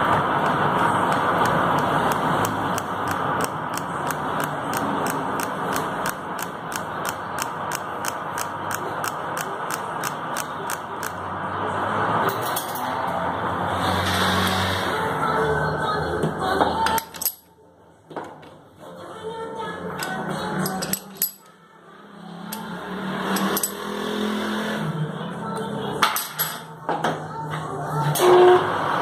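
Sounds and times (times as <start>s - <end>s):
lathe gear noise: 0.0s - 11.2s, 22.5s - 24.9s
sharp ticking: 0.4s - 11.2s.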